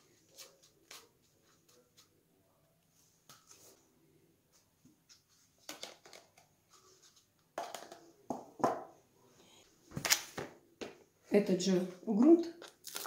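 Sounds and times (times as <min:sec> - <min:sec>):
plastic cups clicking: 0:05.6 - 0:06.5, 0:07.6 - 0:08.1
plastic knocking and rustling: 0:05.6 - 0:06.5, 0:07.5 - 0:08.9.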